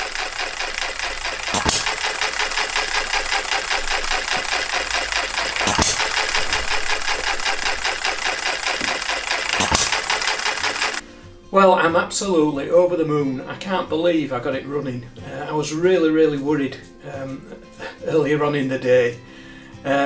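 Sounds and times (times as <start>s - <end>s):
engine firing cracks: 0.0s - 11.0s
small engine clattering: 0.0s - 11.0s.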